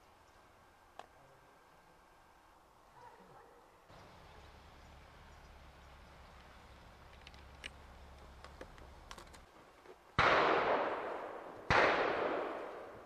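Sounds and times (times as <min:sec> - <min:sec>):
low steady hum: 0:00.0 - 0:13.0
rifle loading clicks: 0:07.0 - 0:09.5
rifle shot bang: 0:10.2 - 0:13.0.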